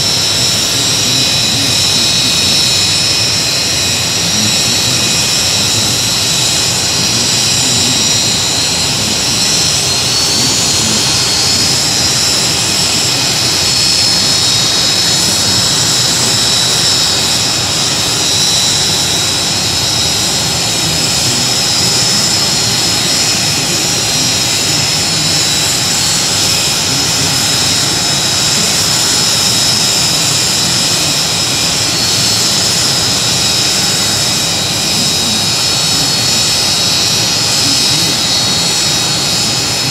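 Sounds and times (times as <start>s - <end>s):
aircraft turbine engine running: 0.0s - 39.9s.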